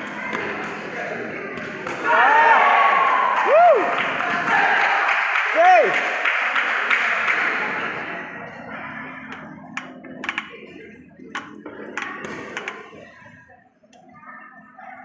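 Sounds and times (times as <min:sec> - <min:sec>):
crowd applause in echoing hall: 0:02.7 - 0:08.2
sharp taps and knocks: 0:09.3 - 0:10.6, 0:11.3 - 0:12.8.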